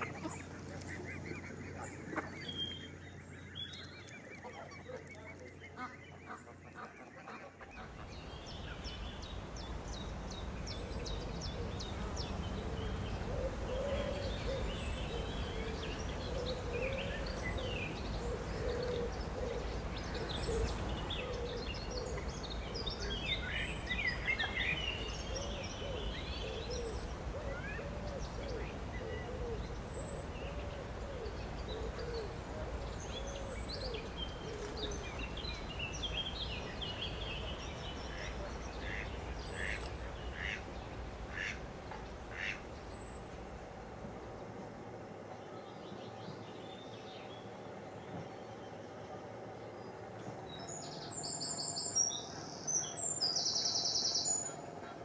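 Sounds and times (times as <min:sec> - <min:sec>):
birds chirping: 0:00.0 - 0:55.0
low cooing bird call: 0:10.7 - 0:39.6.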